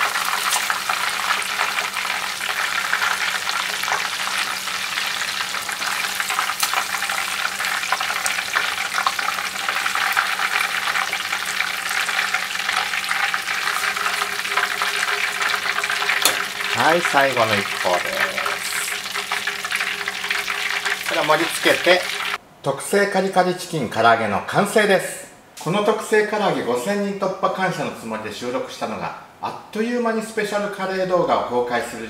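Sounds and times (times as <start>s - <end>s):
food deep-frying in hot oil: 0.0s - 22.4s.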